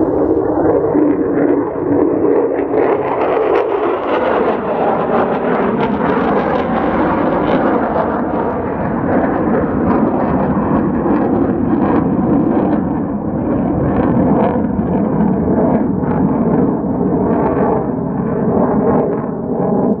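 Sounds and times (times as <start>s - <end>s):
jet roar with crackle: 0.0s - 20.0s.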